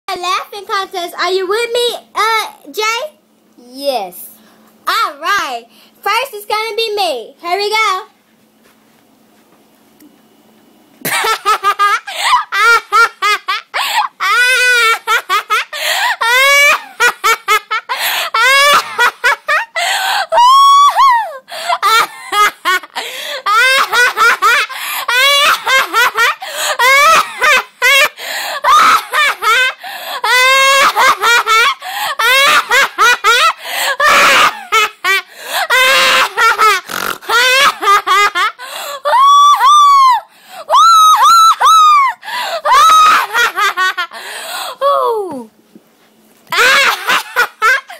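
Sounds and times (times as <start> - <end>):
girl laughing loudly: 11.0 - 45.4, 46.5 - 47.9.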